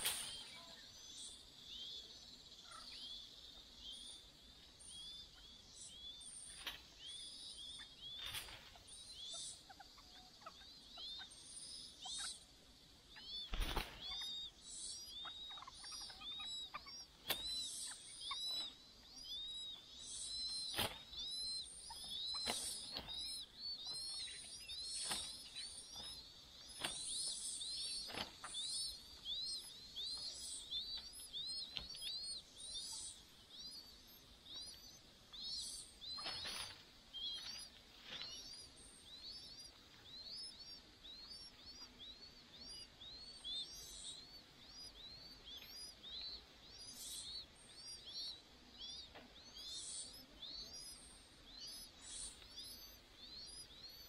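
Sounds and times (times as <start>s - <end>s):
birds rustling in nest twigs: 0.0s - 0.7s, 8.0s - 8.9s, 20.4s - 32.8s, 33.8s - 43.2s
nestlings begging chirps: 0.0s - 54.0s.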